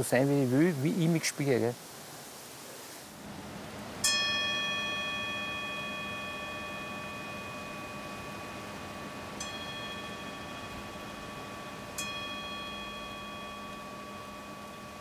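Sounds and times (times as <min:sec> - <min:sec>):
singing bowl struck and ringing: 0:04.0 - 0:15.0.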